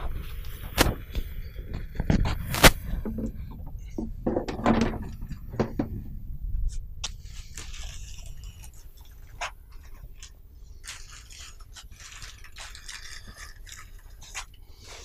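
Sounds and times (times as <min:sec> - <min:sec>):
small clicks and crackles: 0:07.0 - 0:15.0
packing foam scraping: 0:07.2 - 0:15.0
plastic bag crinkling: 0:07.5 - 0:15.0.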